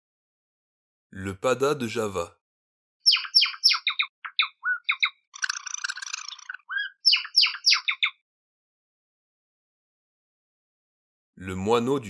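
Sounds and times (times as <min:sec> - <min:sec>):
rapid bird twittering: 0:03.0 - 0:08.2
sparrow calling: 0:03.0 - 0:08.2.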